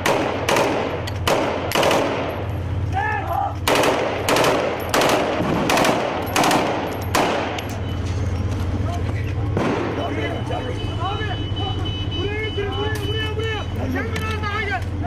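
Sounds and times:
gunshots: 0.0 - 2.4, 3.6 - 7.6, 9.5 - 10.2.

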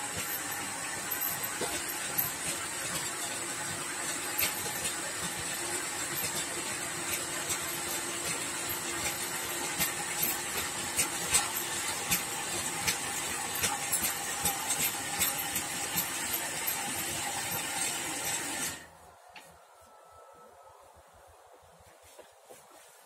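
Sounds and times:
cultivator motor hum and whine: 0.0 - 18.9.

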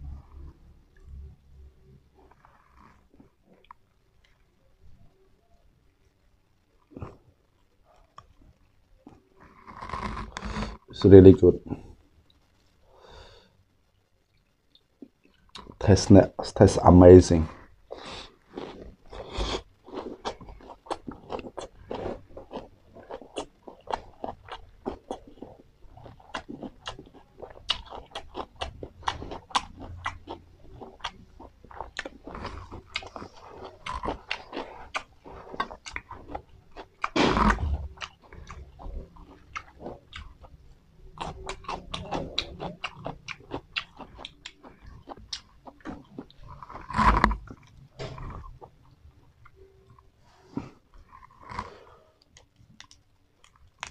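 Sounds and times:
chewing crisp raw herbs: 17.3 - 53.9.

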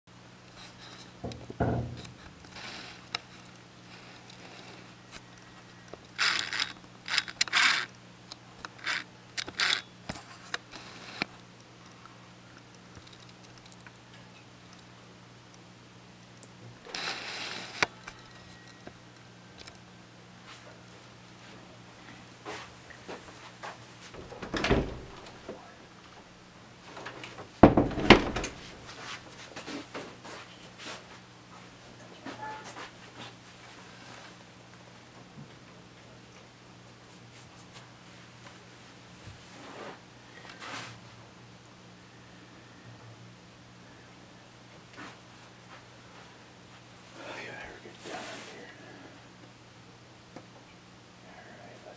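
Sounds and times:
steady low hum: 0.1 - 51.9
objects scraping and rattling: 0.5 - 5.0, 6.0 - 7.9, 16.9 - 18.8
sharp knocks of door shutting: 1.2 - 2.0, 24.2 - 25.5, 27.6 - 28.6.

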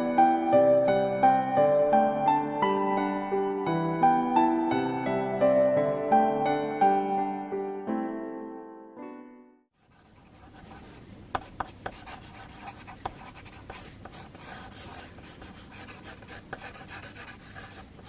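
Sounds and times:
pencil scratching on paper: 9.8 - 18.0.

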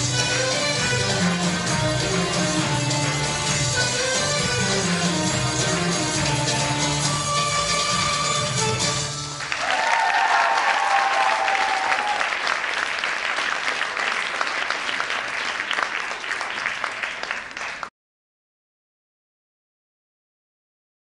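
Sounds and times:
belly dance music: 0.0 - 9.8
cheering voices: 9.4 - 12.7
audience applause: 9.4 - 17.9.

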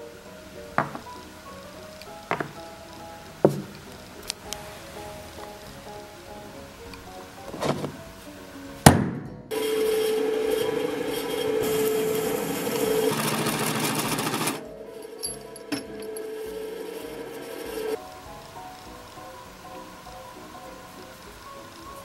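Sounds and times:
drill bit grinding metal: 9.5 - 14.6
drill press humming: 9.5 - 14.6.

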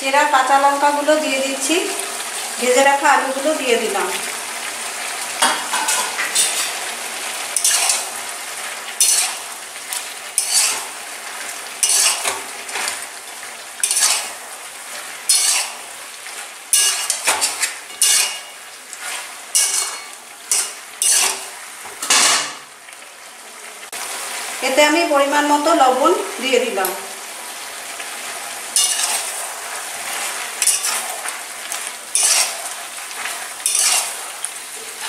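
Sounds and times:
frying sizzle: 0.0 - 35.0
metal spatula scraping in pan: 5.4 - 6.9, 7.5 - 13.0, 13.8 - 22.6, 28.3 - 35.0.

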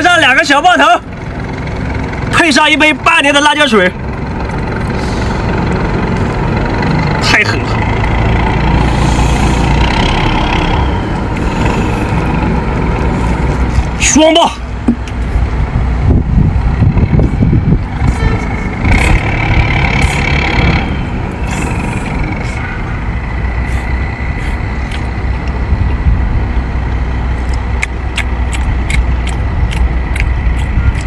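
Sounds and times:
low motor rumble: 0.0 - 31.0
sharp clicks: 27.4 - 31.0.

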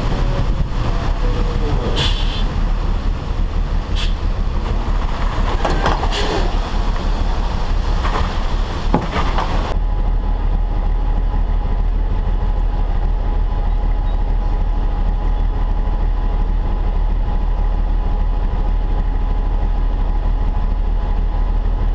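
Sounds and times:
diesel engine idling: 0.0 - 21.9
diesel truck running: 0.0 - 21.9
road and wind noise: 0.0 - 21.9
knocks: 8.9 - 9.6.

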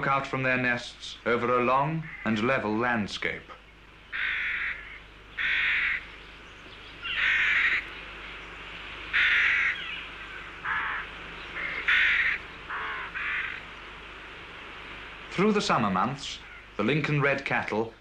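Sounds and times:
rooks cawing: 2.0 - 2.4, 4.1 - 14.2, 16.4 - 16.8.

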